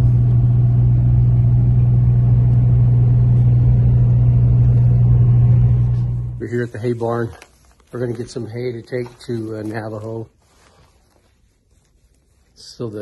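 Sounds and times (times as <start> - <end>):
truck cab engine and road drone: 0.0 - 6.4.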